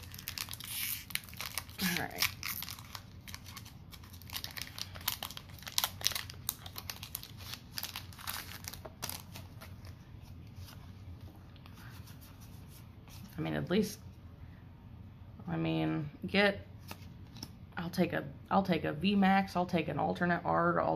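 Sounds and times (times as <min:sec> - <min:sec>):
foil wrapper crinkling and tearing: 0:00.0 - 0:09.8.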